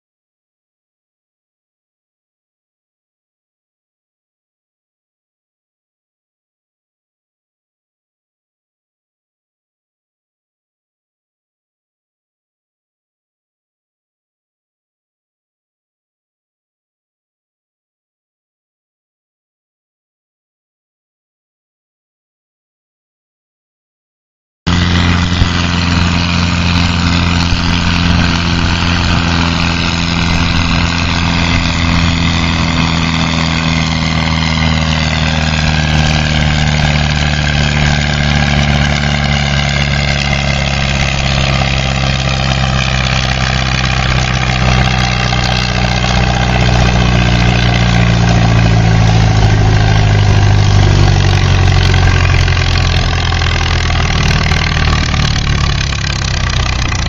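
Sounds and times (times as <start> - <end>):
tractor engine running hard: 24.7 - 57.0.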